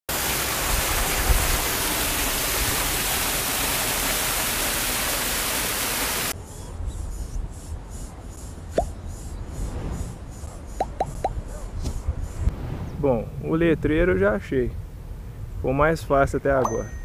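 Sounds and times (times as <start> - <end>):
waterfall splashing into pool: 0.1 - 6.4.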